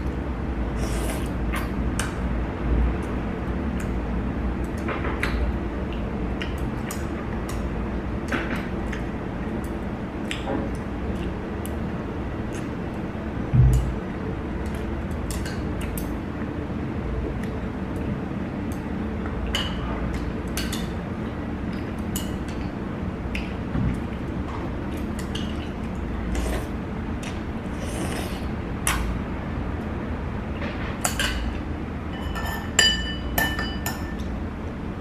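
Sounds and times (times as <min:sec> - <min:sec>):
low room hum: 0:00.0 - 0:35.0
slurping noodles: 0:26.3 - 0:26.8, 0:27.6 - 0:28.5.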